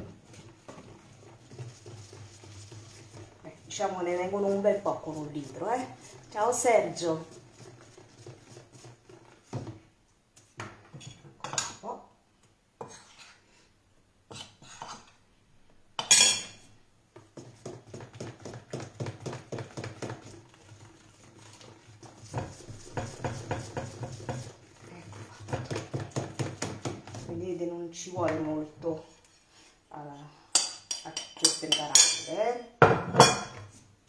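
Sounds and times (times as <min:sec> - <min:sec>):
whisk beating batter in bowl: 0:00.0 - 0:09.7, 0:17.1 - 0:27.7.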